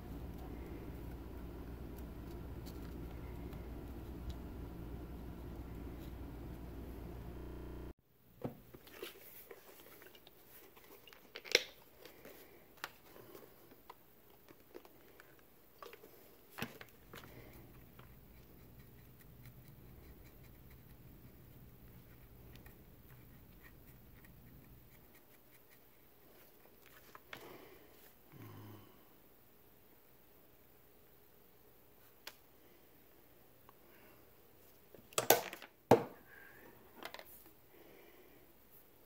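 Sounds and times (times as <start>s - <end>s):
low steady hum: 0.0s - 8.0s.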